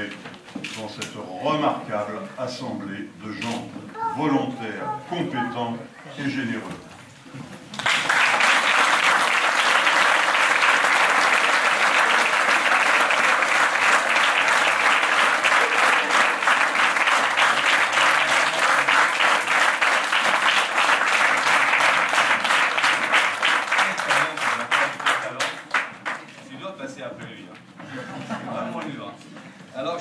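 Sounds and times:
audience applauding: 7.7s - 26.3s.

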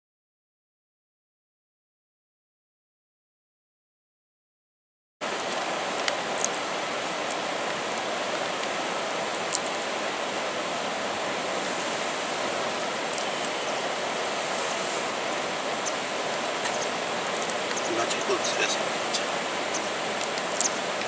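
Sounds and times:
steady outdoor hiss: 5.2s - 21.0s
faint high ticks: 19.7s - 21.0s.

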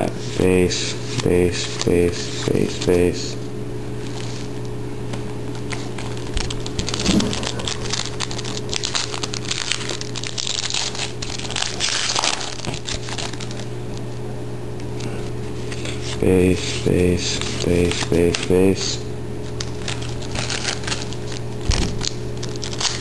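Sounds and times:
steady low hum: 0.0s - 23.0s
foil wrapper crinkling: 4.0s - 13.8s, 19.4s - 23.0s
cards handled: 4.0s - 14.1s.

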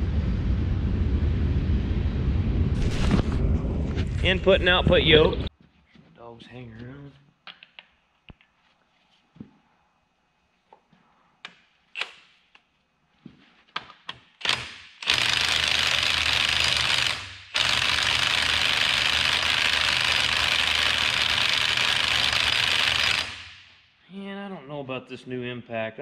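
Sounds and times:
impact wrench hammering: 13.8s - 23.8s.

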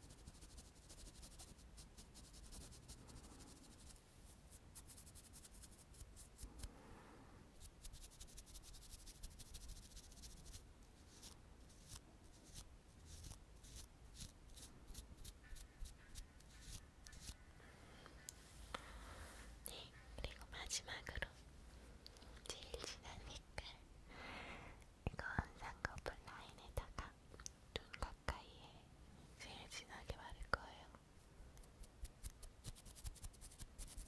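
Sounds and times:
makeup brush scratchy strokes: 0.0s - 6.7s, 7.6s - 17.4s, 31.7s - 34.0s.

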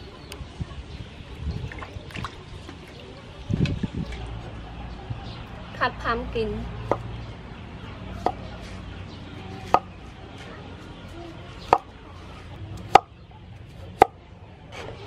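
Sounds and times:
cleaver chopping on wooden board: 12.9s - 13.1s.

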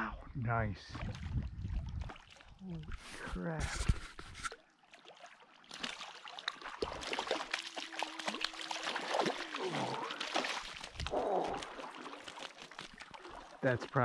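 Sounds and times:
water splashing and trickling: 0.1s - 14.0s
fish thrashing in water: 4.3s - 14.0s.

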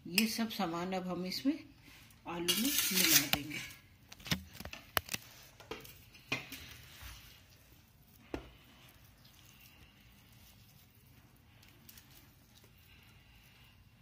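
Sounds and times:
potatoes squished by hand: 2.9s - 13.9s.

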